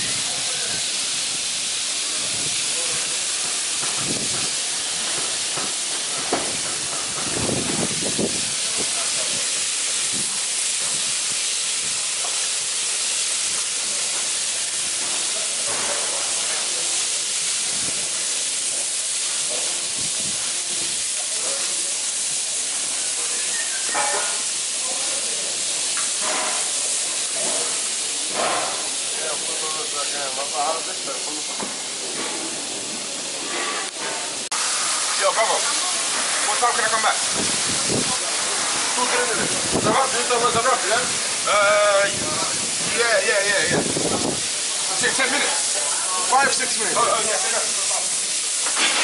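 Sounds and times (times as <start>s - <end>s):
meat sizzling on a griddle: 0.0s - 49.0s.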